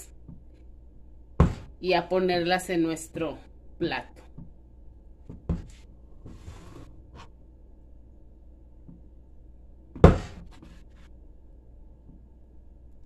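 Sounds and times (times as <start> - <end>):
soft rubbing of plastic mold: 5.4 - 7.4, 10.2 - 11.2.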